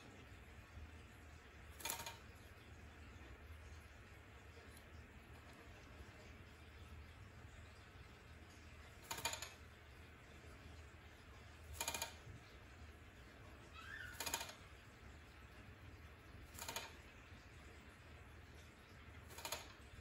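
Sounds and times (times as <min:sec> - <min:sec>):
faint rising bird chirp: 0:13.7 - 0:14.4.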